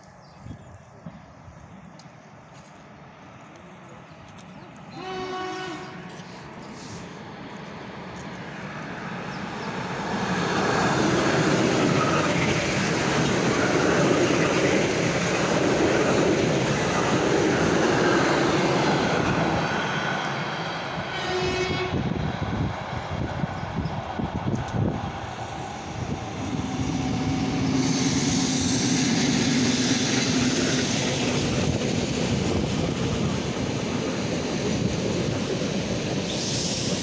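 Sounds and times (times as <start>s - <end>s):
train rushing and clattering past: 4.8s - 37.0s
train horn blast: 4.9s - 6.3s, 21.1s - 22.2s.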